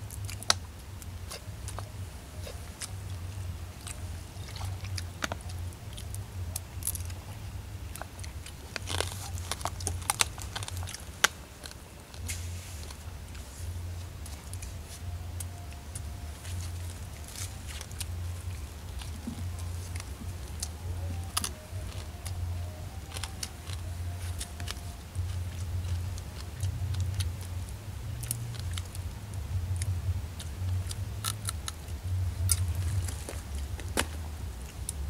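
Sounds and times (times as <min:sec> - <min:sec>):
food wrapping crinkling: 0:00.0 - 0:35.0
steady low rumble: 0:00.0 - 0:35.0
crab shells cracking: 0:07.9 - 0:12.3, 0:17.0 - 0:27.4.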